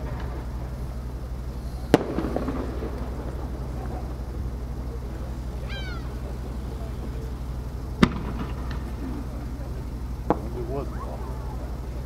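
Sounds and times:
steady low hum: 0.0s - 12.0s
firework shell boom with echo: 8.0s - 9.0s, 10.3s - 10.8s.

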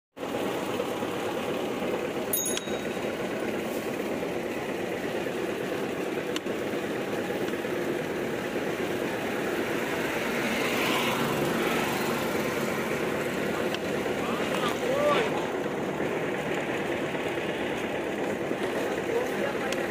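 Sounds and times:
street traffic engines: 0.2s - 19.9s
metallic bell ring: 2.3s - 3.3s.

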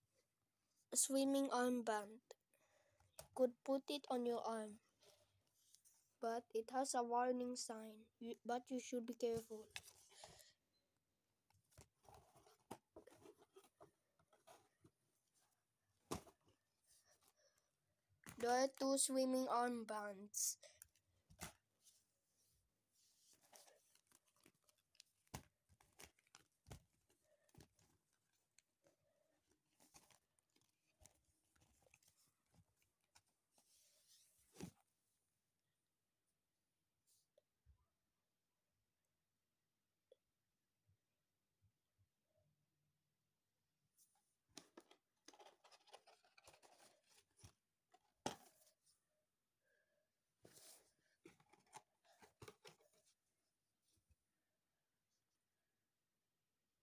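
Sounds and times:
plastic armbands crinkling and rustling: 23.3s - 33.4s, 44.6s - 48.8s.

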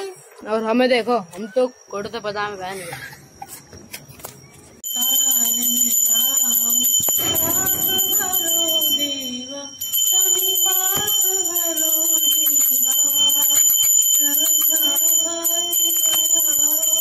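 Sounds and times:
voices singing devotional tune: 4.8s - 17.0s
brass hand bell ringing rapidly: 4.9s - 17.0s.

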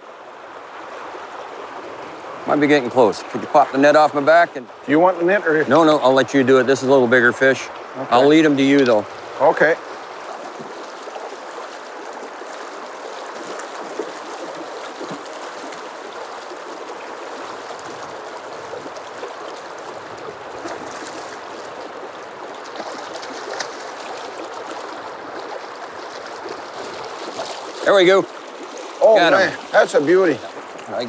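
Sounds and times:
river current rushing: 0.0s - 31.0s
fish splashing at surface: 9.9s - 30.9s.

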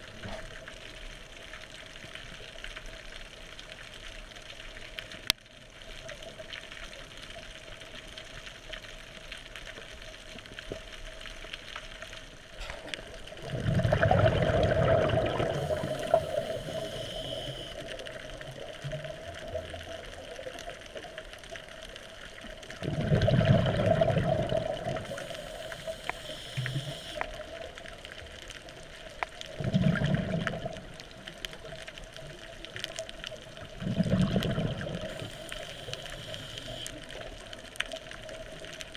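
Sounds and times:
steady underwater hiss: 6.3s - 38.9s
underwater exhaust bubbling: 12.6s - 38.9s.

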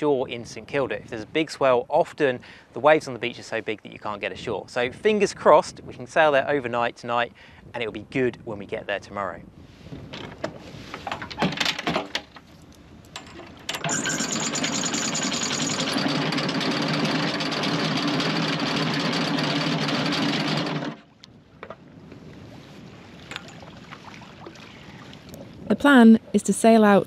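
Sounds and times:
motorised machine running: 13.8s - 21.0s.

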